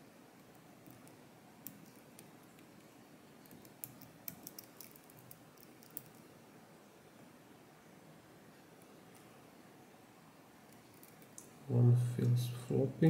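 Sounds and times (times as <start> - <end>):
lock pick clicking: 3.5 - 6.2.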